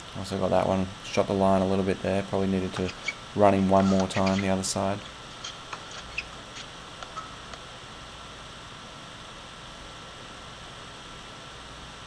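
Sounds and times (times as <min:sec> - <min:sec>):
steady background hiss: 0:00.0 - 0:12.0
faint short squeaks: 0:02.8 - 0:03.2, 0:03.8 - 0:04.6, 0:05.4 - 0:07.3.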